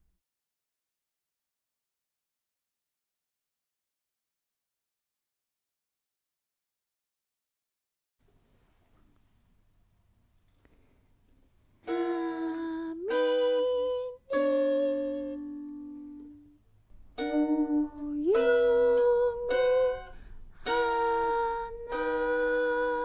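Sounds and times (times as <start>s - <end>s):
person singing: 11.8s - 16.5s, 17.2s - 23.0s.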